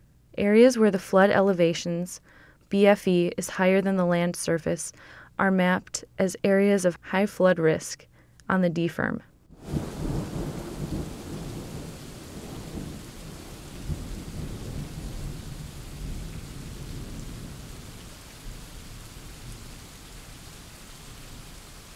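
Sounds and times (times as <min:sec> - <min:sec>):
steady rain: 0:09.5 - 0:21.9
low rumble of thunder: 0:09.6 - 0:21.9.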